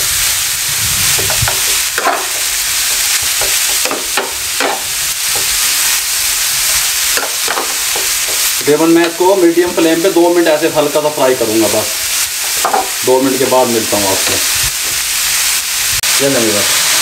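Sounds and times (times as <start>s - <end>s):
vegetables sizzling in hot oil: 0.0s - 17.0s.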